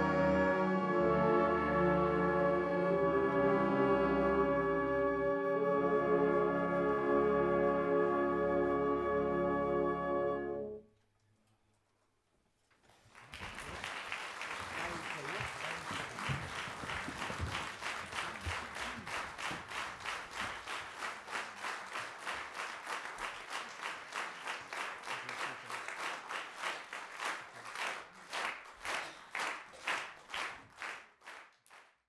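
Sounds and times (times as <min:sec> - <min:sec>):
audience clapping in unison: 0:12.9 - 0:32.0.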